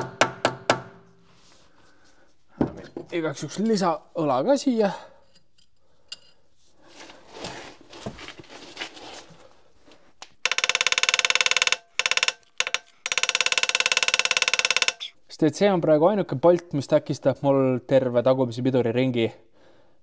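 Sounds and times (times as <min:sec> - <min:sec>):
impact wrench hammering: 0:00.0 - 0:01.1, 0:10.4 - 0:15.1.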